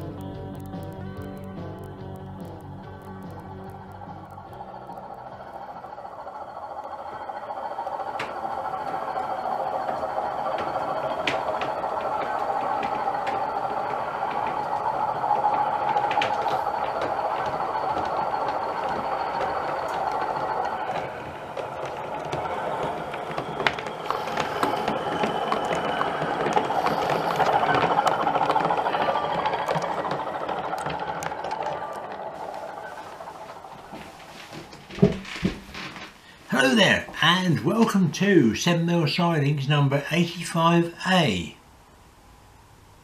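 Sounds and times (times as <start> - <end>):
model diesel engine sound: 0.0 - 35.1
motors whirring: 0.0 - 36.2
wheels rattling on track: 0.0 - 41.6.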